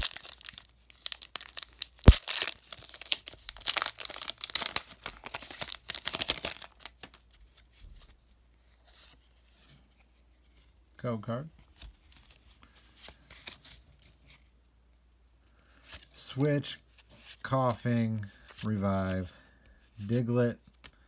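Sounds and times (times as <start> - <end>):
foil wrapper tearing and crinkling: 0.0 - 7.2
faint handling sounds: 7.0 - 21.0.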